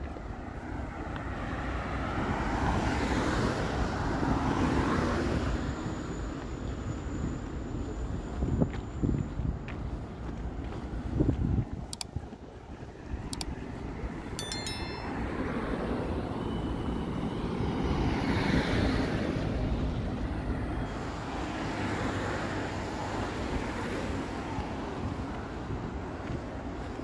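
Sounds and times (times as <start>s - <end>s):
city road traffic: 0.0s - 27.0s.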